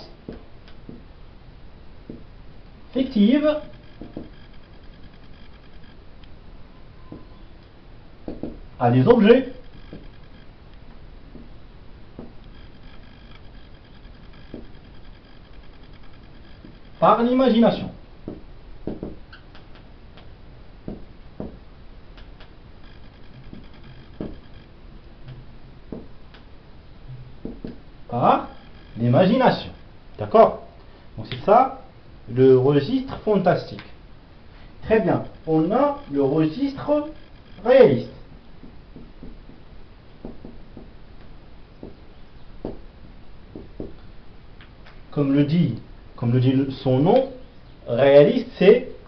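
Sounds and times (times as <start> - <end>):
marker writing on whiteboard: 8.3 - 8.6, 18.3 - 21.6, 23.5 - 24.4, 27.4 - 27.8, 38.6 - 39.6, 40.2 - 41.0, 41.8 - 42.0.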